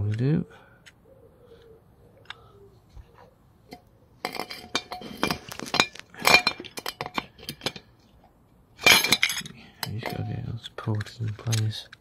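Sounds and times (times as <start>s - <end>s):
metal tools clinking: 3.7s - 8.0s, 8.8s - 10.4s.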